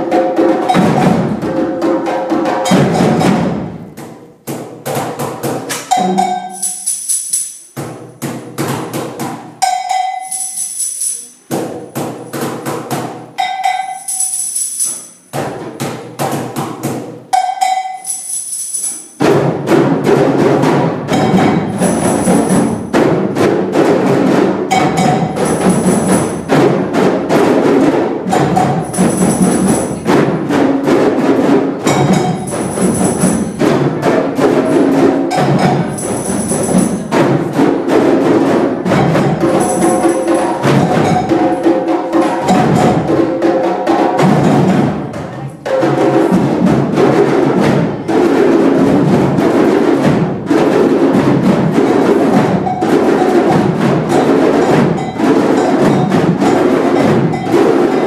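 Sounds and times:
children playing hand drums: 0.0 - 58.0
ringing bell-like accent: 5.9 - 7.8, 9.6 - 11.5, 13.4 - 15.3, 17.4 - 19.2, 31.9 - 33.6, 35.3 - 37.1, 39.1 - 41.7.

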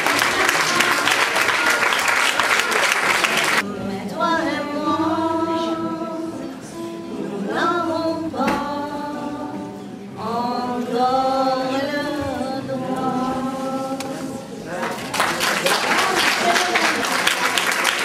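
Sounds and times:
women singing together: 0.0 - 1.6, 3.6 - 14.8.

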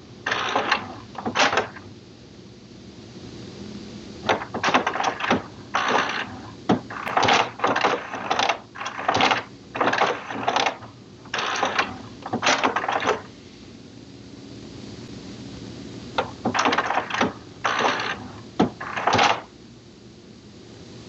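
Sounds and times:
printer mechanism bursts: 0.2 - 1.9, 4.2 - 13.3, 16.2 - 19.5.

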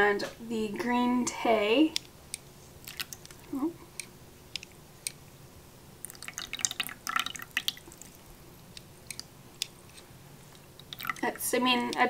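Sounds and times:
water dripping and splashing: 2.8 - 3.4, 6.0 - 9.7, 10.5 - 12.0.

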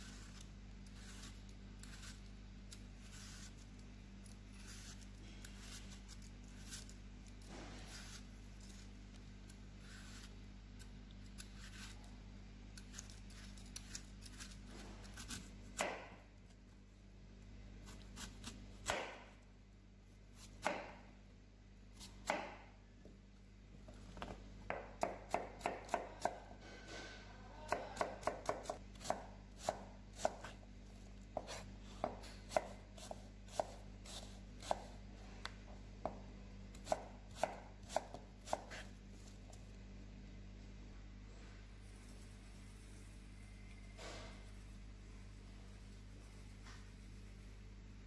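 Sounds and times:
knife chopping on cutting board: 15.1 - 16.2, 17.9 - 19.3, 20.4 - 21.1, 22.0 - 22.7, 24.6 - 26.5, 27.7 - 30.6, 31.3 - 35.0, 36.0 - 38.9.

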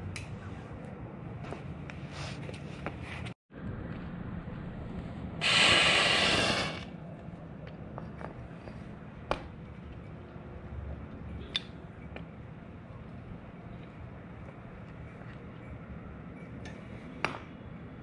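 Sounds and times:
hot metal hissing on ice: 5.4 - 6.9.

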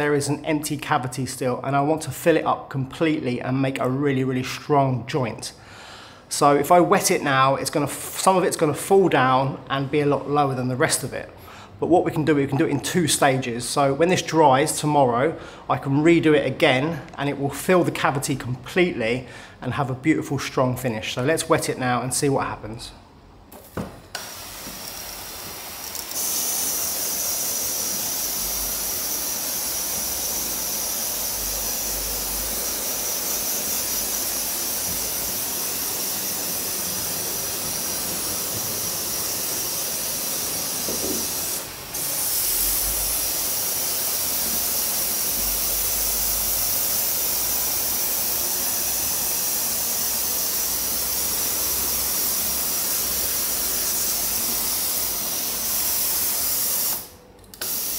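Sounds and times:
hose nozzle spraying on stone: 24.2 - 57.9.

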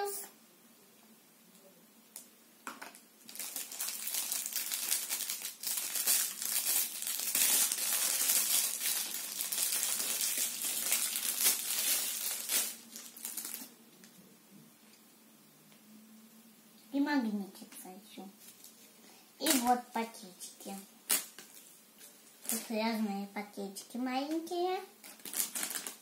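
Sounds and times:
plastic packaging crinkling: 2.6 - 14.2, 18.4 - 20.0, 20.7 - 23.0, 25.0 - 26.0.

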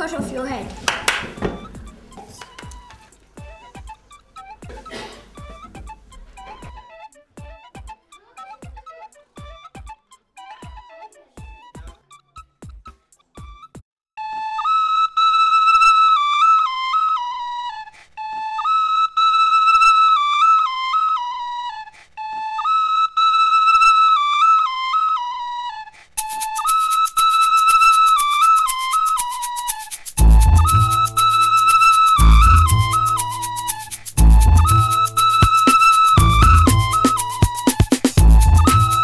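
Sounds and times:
recorder melody: 0.8 - 8.0, 18.4 - 39.0.

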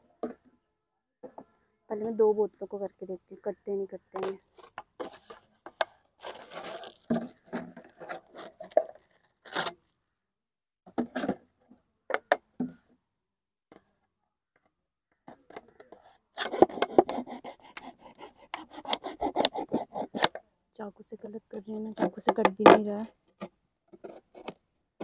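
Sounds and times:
knife scraping plastic bottle: 4.2 - 9.8, 16.4 - 20.4
plastic crackling: 6.2 - 9.8.

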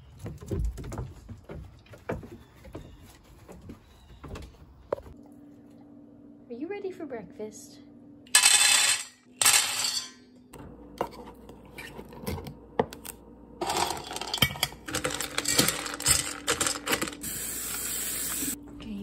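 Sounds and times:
kibble rattling into metal bowl: 13.6 - 17.2.

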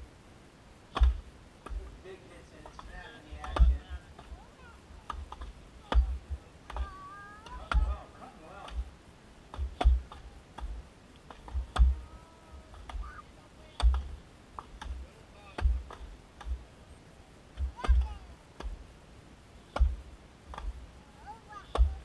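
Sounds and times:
axe chopping into log: 0.9 - 1.8, 3.5 - 3.8, 9.5 - 10.7, 19.7 - 20.7.

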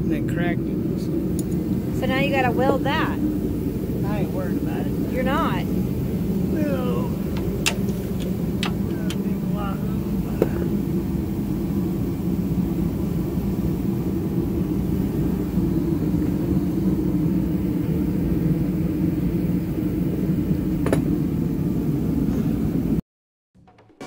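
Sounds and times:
diesel truck engine idling: 4.0 - 11.6.

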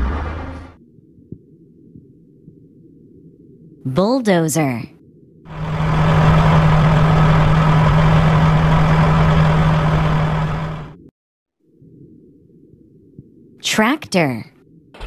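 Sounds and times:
bulldozer diesel engine running: 0.0 - 0.8, 5.5 - 11.1.

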